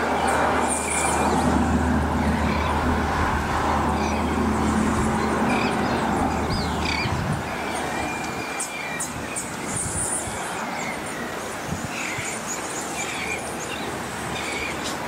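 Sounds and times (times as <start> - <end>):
birds chirping and whistling: 5.2 - 11.0.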